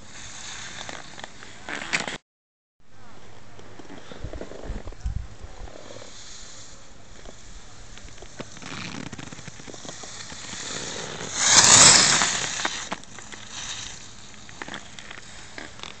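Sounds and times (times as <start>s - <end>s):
skis scraping snow: 0.0s - 2.2s, 5.7s - 16.0s.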